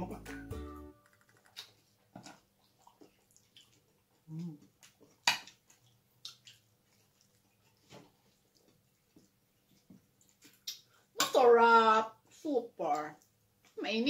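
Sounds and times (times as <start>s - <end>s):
wet chewing smacks: 1.5s - 11.1s.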